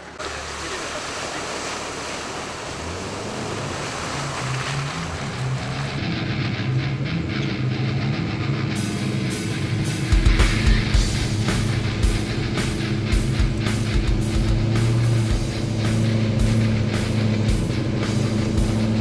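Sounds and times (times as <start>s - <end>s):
vehicle engine in mud: 0.0s - 19.0s
rock music: 4.9s - 19.0s.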